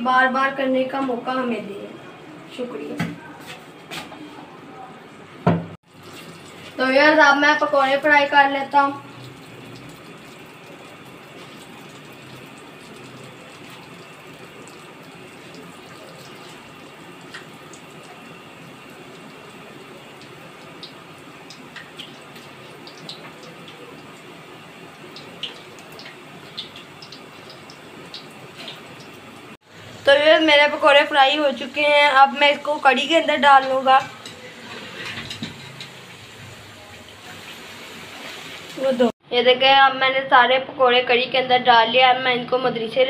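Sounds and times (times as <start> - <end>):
hot oil sizzling: 5.8 - 39.2
oil popping and crackling: 9.1 - 29.6.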